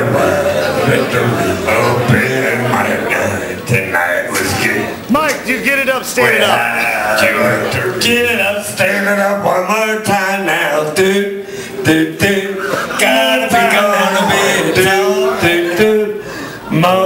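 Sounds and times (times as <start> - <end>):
man singing: 6.1 - 17.0.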